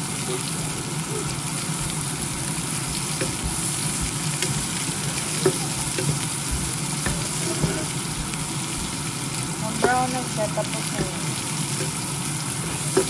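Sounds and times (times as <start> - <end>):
onions sizzling in a frying pan: 0.0 - 13.0
wooden spatula tapping pan: 2.9 - 7.9, 9.8 - 10.1.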